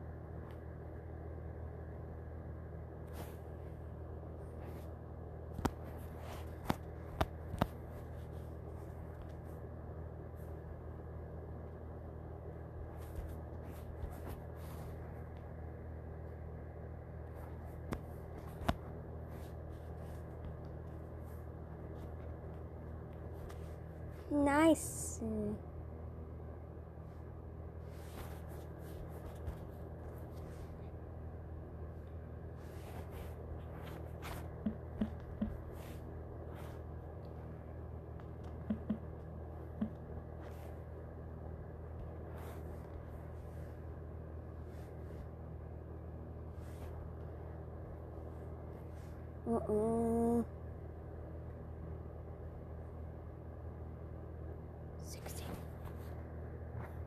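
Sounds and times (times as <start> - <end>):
low room hum: 0.0 - 57.0
fingertip taps on touchscreen: 38.6 - 39.1.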